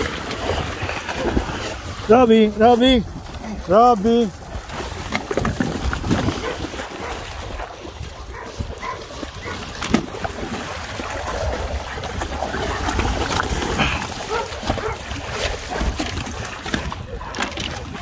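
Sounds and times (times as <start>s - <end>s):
dogs splashing in water: 0.0s - 18.0s
dog vocalizing: 8.2s - 9.8s, 11.0s - 16.0s.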